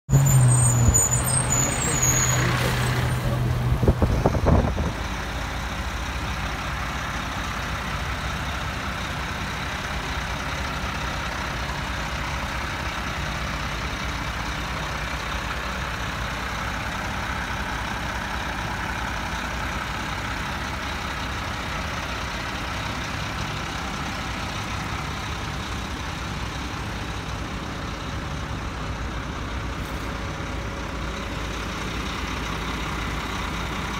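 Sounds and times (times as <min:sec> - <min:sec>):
high brake squeal: 0:00.1 - 0:03.4
diesel truck engine rumble: 0:00.1 - 0:33.9.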